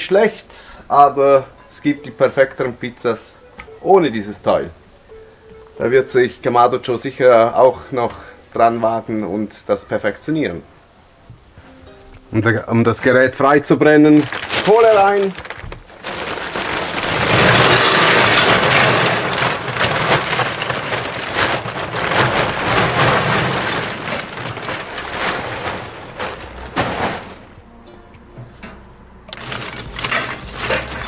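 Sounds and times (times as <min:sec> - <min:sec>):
charcoal clattering into metal basket: 0:13.8 - 0:27.6, 0:29.3 - 0:31.0.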